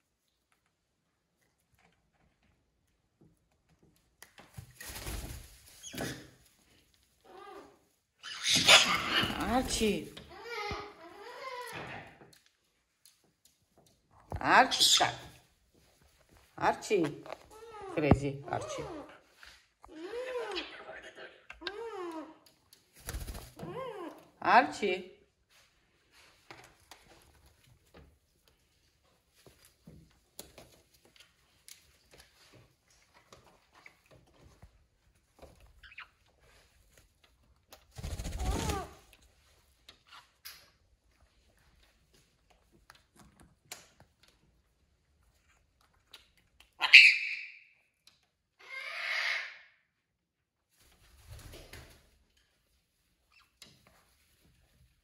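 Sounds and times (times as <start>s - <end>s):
parrot squawking: 8.2s - 9.5s, 46.8s - 47.6s, 48.6s - 49.6s.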